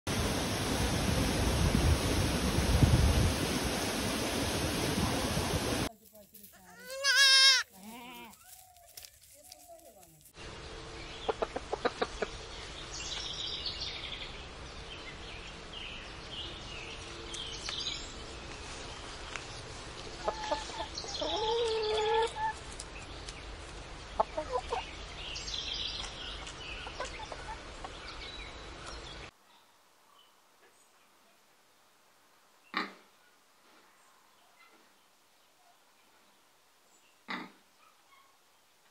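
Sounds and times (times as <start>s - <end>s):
chickens clucking: 11.2s - 12.5s, 20.2s - 22.7s, 24.1s - 25.0s, 26.4s - 28.0s.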